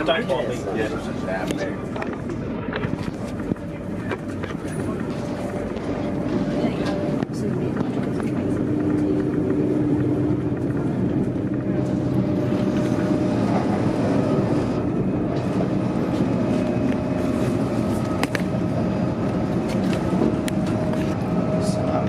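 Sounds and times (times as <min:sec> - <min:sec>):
train wheels rumbling: 0:00.0 - 0:22.0.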